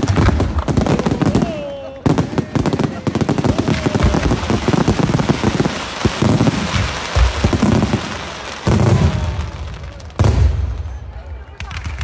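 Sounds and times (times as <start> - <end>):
fireworks crackling: 0.0 - 12.0
deep firework booms: 3.4 - 10.9.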